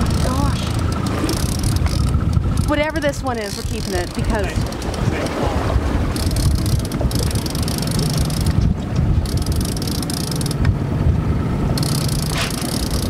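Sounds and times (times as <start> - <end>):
fishing reel clicking rapidly: 0.0 - 5.1, 6.1 - 8.6, 9.2 - 10.6, 11.8 - 13.0
boat engine humming: 0.0 - 13.0
wind rumble: 0.0 - 13.0.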